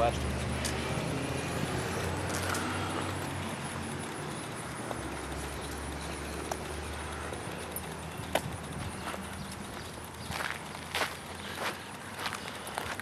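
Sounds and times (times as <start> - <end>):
footsteps on pavement: 4.8 - 13.0.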